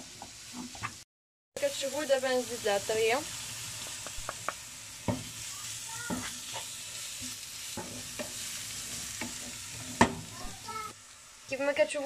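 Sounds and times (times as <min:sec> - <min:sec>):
vegetables sizzling in oil: 0:00.0 - 0:01.0, 0:01.6 - 0:12.0
wooden spoon scraping and knocking pan: 0:06.0 - 0:10.6.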